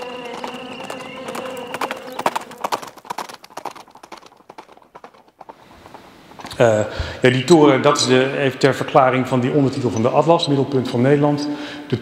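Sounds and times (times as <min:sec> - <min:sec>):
horse hooves clip-clopping on road: 0:00.0 - 0:06.8.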